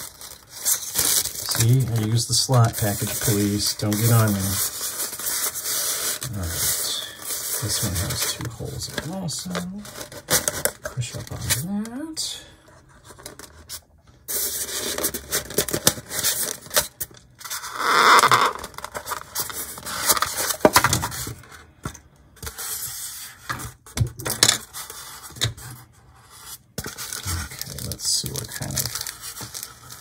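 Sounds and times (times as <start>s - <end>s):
styrofoam rubbing and scraping: 0.0s - 10.2s, 24.7s - 30.0s.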